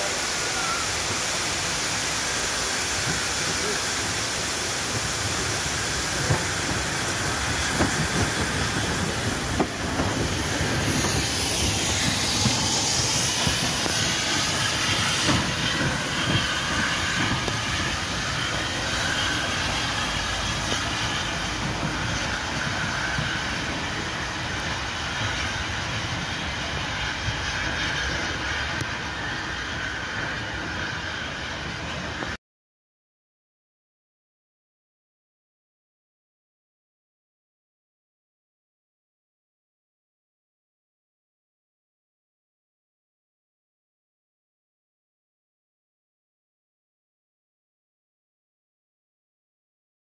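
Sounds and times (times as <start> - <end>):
steam hissing: 0.0 - 32.4
rail clatter: 3.0 - 29.3.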